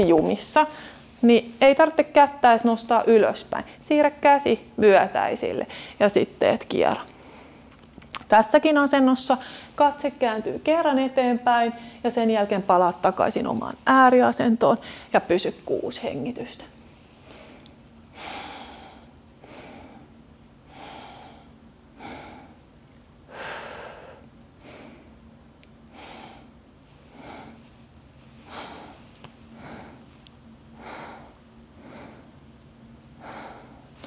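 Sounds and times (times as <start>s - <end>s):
faint low hum: 0.0s - 34.0s
woman breathing through nose: 5.7s - 6.0s, 9.4s - 9.8s, 14.8s - 15.2s, 17.2s - 22.7s, 23.3s - 25.2s, 25.9s - 32.4s, 33.2s - 34.0s.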